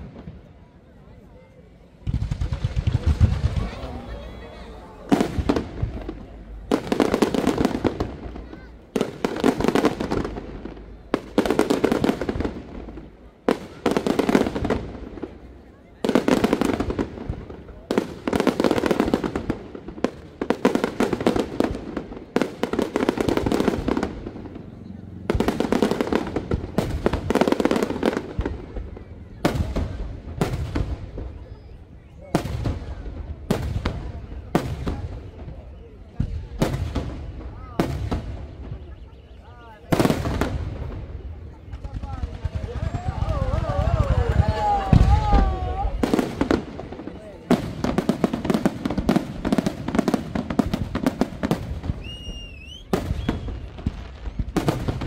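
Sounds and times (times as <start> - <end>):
fireworks bursting: 1.9 - 55.0
high firework whistle: 51.8 - 54.6.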